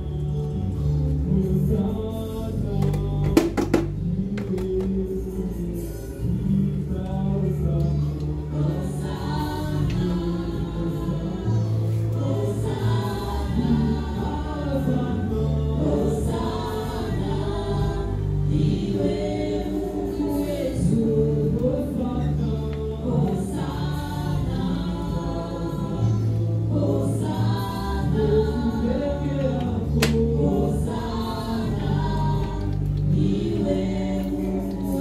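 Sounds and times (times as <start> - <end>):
choir singing: 0.0 - 35.0
held bass notes: 0.0 - 35.0.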